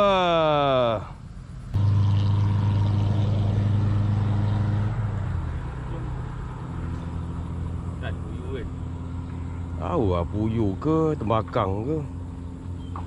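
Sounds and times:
engine running steadily: 0:00.1 - 0:13.0.

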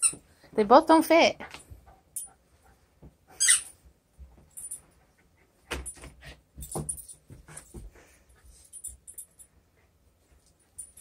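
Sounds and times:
dog toy squeak: 0:03.4 - 0:03.7.

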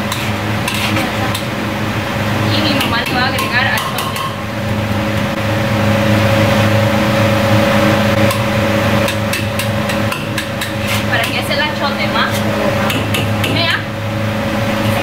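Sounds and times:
metal utensils clanking on a wok: 0:00.0 - 0:01.5, 0:02.6 - 0:04.4, 0:08.3 - 0:11.6
wok range humming: 0:00.0 - 0:15.0.

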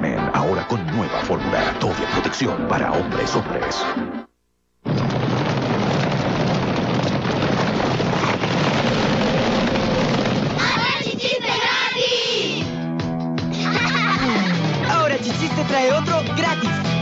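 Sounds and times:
children shouting and cheering: 0:10.4 - 0:12.7, 0:13.5 - 0:14.9.

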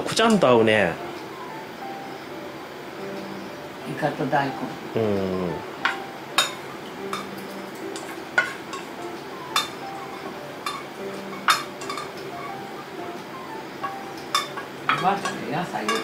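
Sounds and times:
soft background music: 0:00.0 - 0:16.0
tableware clinking: 0:05.8 - 0:12.8, 0:13.8 - 0:16.0.

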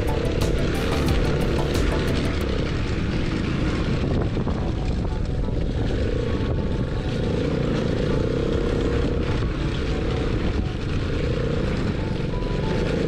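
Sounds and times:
terrain noise: 0:00.0 - 0:08.1
wind rumble: 0:00.0 - 0:12.9
go-kart engine running: 0:00.0 - 0:13.0.

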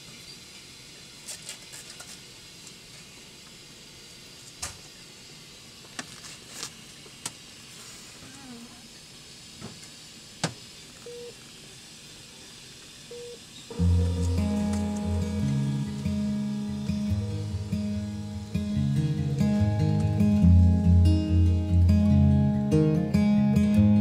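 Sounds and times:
steady hiss: 0:00.0 - 0:23.9.

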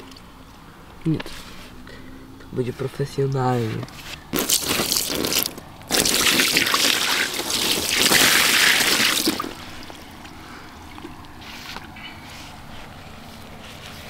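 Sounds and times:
water splashing and trickling: 0:04.4 - 0:10.3.

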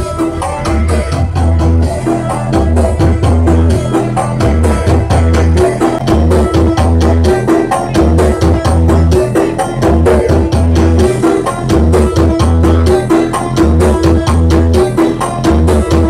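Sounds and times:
fast percussion beat: 0:00.0 - 0:16.0
loud music with booming bass: 0:00.0 - 0:16.0.

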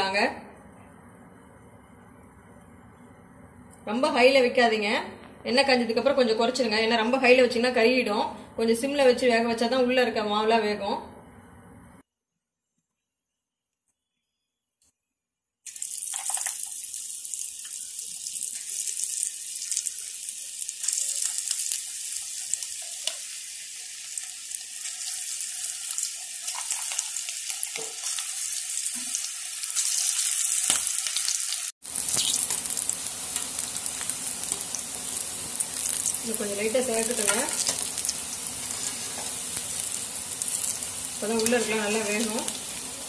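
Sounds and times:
batter deep-frying in oil: 0:15.7 - 0:43.0.

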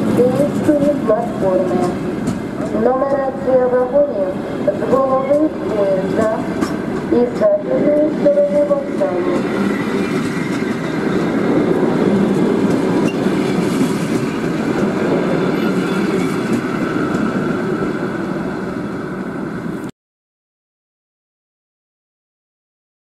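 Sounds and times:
train wheels rumbling on rails: 0:00.0 - 0:19.9.

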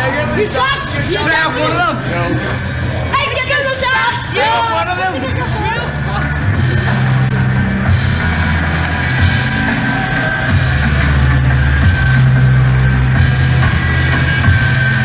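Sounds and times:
rock band playing: 0:00.0 - 0:15.0
bass guitar held notes: 0:05.2 - 0:15.0.

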